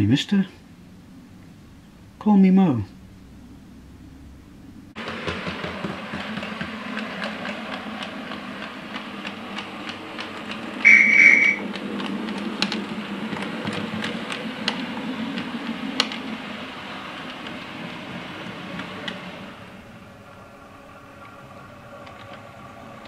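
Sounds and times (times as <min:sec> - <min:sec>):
model train running hum: 0:02.3 - 0:23.0
light track clicks: 0:05.0 - 0:19.5, 0:21.1 - 0:23.0
short high train toot: 0:10.8 - 0:11.6.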